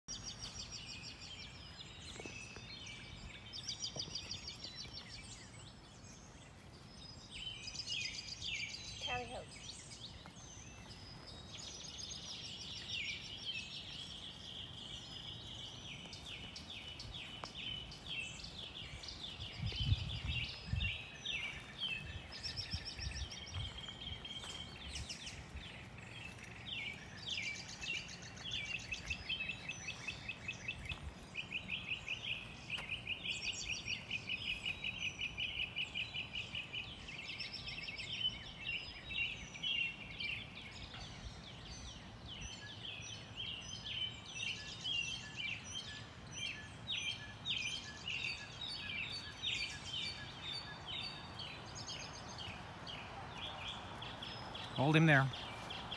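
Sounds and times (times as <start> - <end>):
songbirds chirping and trilling: 0.0 - 55.9.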